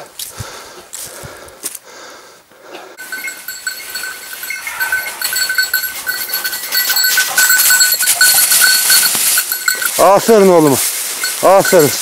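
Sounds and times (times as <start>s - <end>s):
dog bell jingling: 3.0s - 12.0s.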